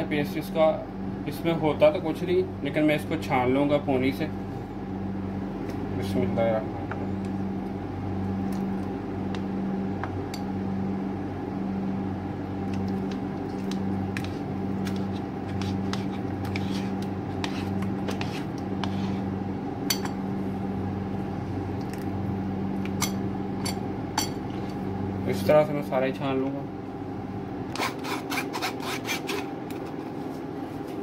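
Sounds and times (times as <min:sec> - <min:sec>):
spoon scraping paste through sieve: 0:13.5 - 0:19.3.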